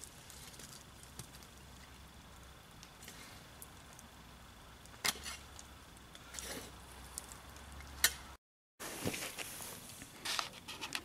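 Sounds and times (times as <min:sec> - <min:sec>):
campfire embers crackling: 0:00.0 - 0:08.4.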